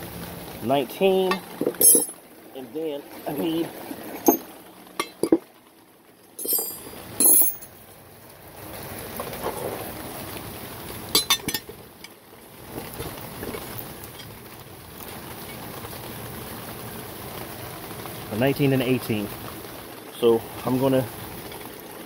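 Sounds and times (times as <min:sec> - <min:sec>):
metal hand tools clinking: 0:01.3 - 0:02.2, 0:04.2 - 0:05.4, 0:06.4 - 0:07.7, 0:11.2 - 0:11.7
loud ringing metal clank: 0:06.4 - 0:07.7.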